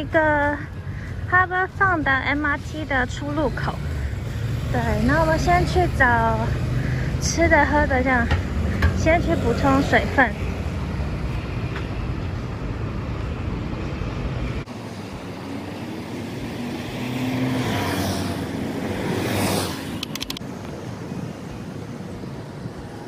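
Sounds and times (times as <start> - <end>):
low traffic rumble: 0.0 - 23.0
bus driving past: 2.7 - 23.0
quick run of clicks: 20.0 - 20.4.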